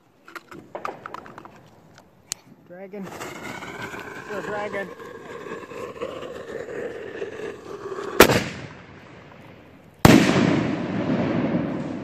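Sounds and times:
firework launch bang: 0:08.1 - 0:09.3, 0:10.0 - 0:12.0.

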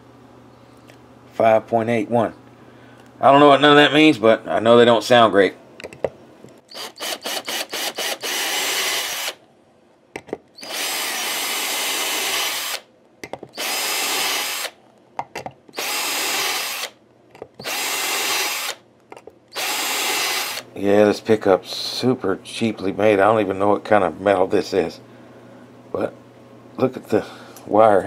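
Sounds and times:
cordless drill spinning: 0:06.7 - 0:09.4, 0:10.6 - 0:12.8, 0:13.5 - 0:14.8, 0:15.7 - 0:17.0, 0:17.6 - 0:18.8, 0:19.5 - 0:20.6.

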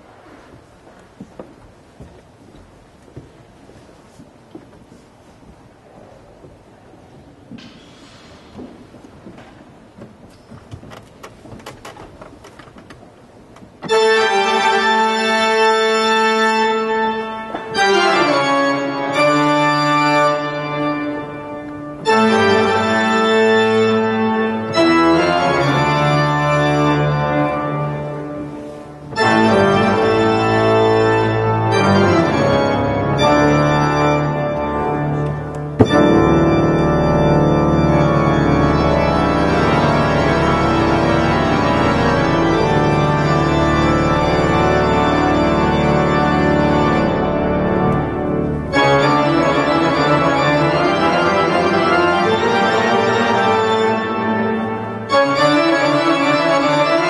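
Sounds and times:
pipe organ playing chords: 0:13.8 - 0:57.0.

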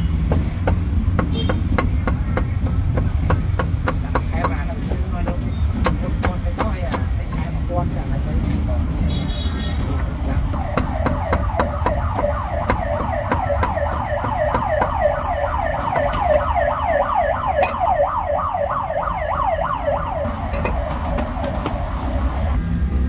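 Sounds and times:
low traffic rumble: 0:00.0 - 0:23.0
electronic siren sweeping: 0:10.6 - 0:22.6.

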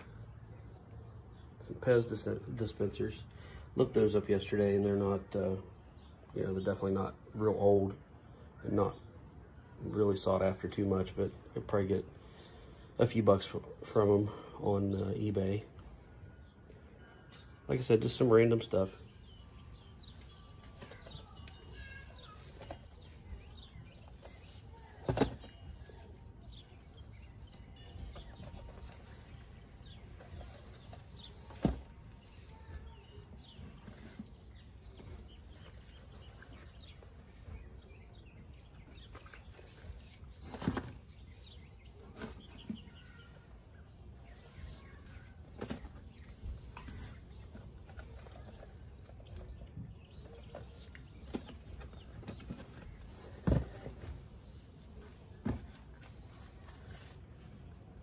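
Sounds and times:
faint bird chirps: 0:19.0 - 0:58.0.

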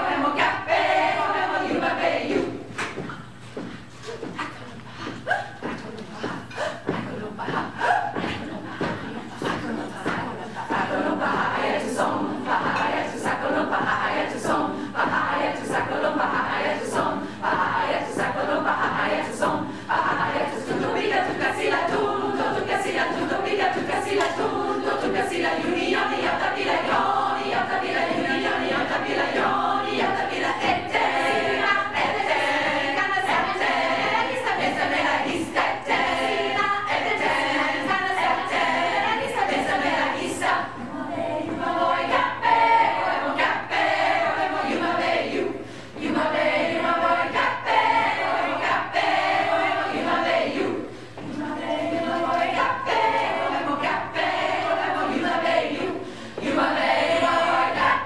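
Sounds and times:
women's choir singing a cappella: 0:00.0 - 0:58.0.

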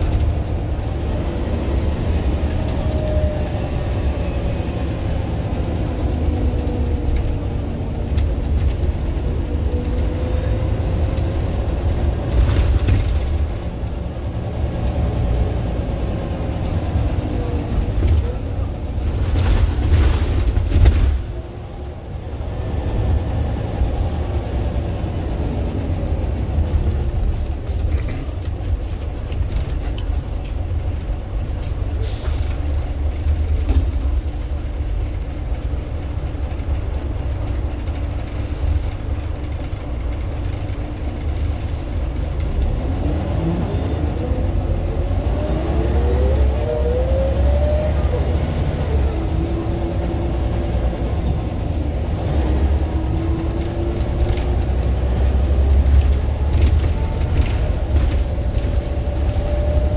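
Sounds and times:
diesel bus engine rumbling: 0:00.0 - 0:59.9
air brake hisses: 0:32.0 - 0:32.6.

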